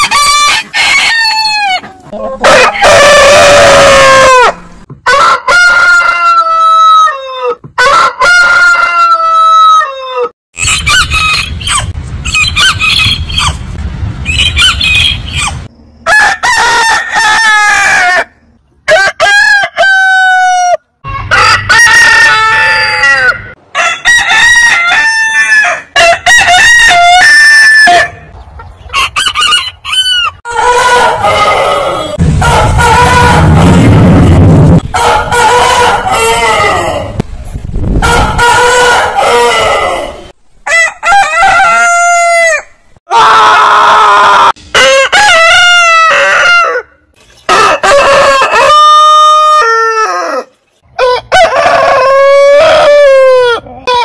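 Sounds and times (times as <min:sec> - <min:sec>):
roosters crowing: 0:00.0 - 0:13.6, 0:14.3 - 0:37.2, 0:38.0 - 0:54.0
low rumble: 0:11.1 - 0:16.0, 0:31.2 - 0:35.3.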